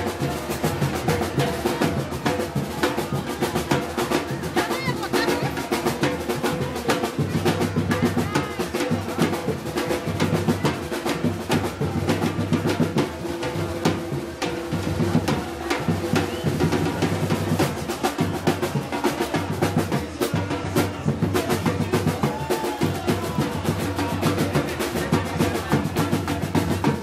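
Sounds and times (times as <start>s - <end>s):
bass drum beat: 11.6s - 27.0s.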